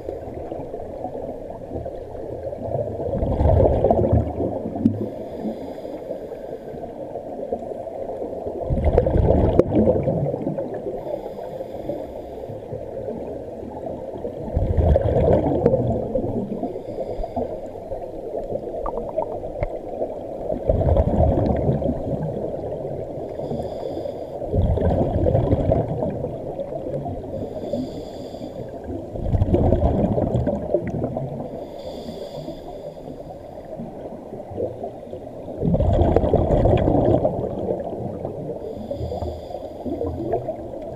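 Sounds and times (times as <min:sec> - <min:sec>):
exhaled bubbles rumbling underwater: 0:00.0 - 0:40.9
regulator inhalation hiss: 0:16.8 - 0:17.8, 0:23.3 - 0:24.4, 0:27.4 - 0:28.8, 0:31.6 - 0:33.7, 0:38.6 - 0:40.3.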